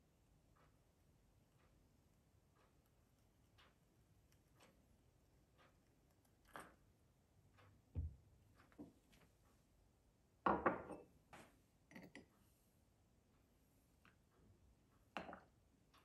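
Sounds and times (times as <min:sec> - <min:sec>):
soft knock: 0:08.0 - 0:08.2
saucer clattering on wood: 0:10.5 - 0:11.1.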